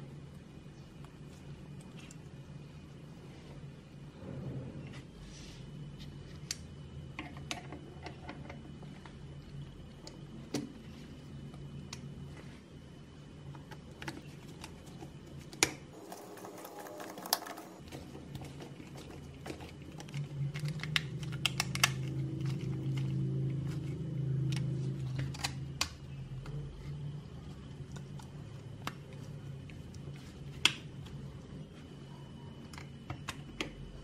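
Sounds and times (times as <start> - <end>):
low hum: 0.0 - 34.0.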